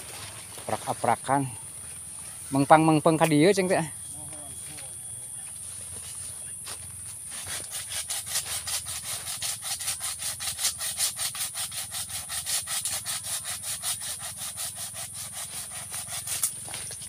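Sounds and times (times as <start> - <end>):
hand saw cutting wood: 7.3 - 17.0.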